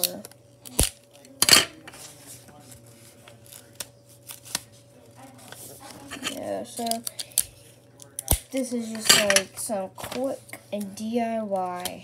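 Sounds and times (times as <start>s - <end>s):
paper rustling: 1.8s - 6.2s.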